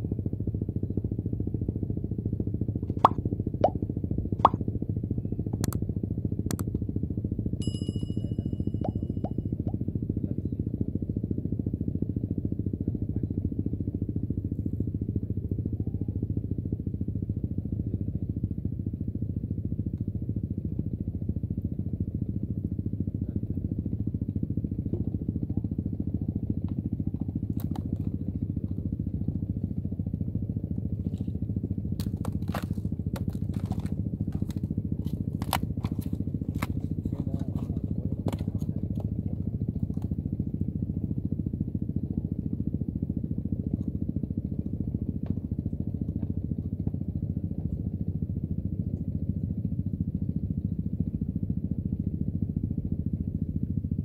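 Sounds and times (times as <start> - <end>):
low engine drone: 0.0 - 54.0
sharp clicks and knocks: 5.6 - 5.8.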